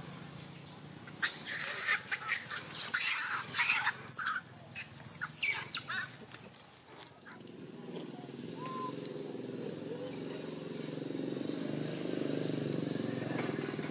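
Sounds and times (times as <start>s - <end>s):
monkeys screaming and squealing: 1.1s - 6.6s, 8.6s - 9.0s.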